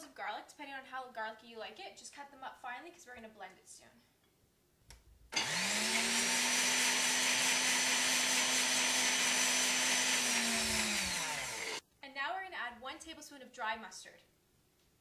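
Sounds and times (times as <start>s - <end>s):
blender motor whining: 5.4s - 11.8s.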